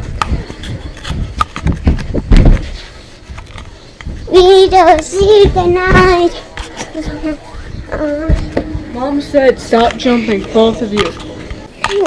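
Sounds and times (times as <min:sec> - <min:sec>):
child singing: 0:04.3 - 0:06.4.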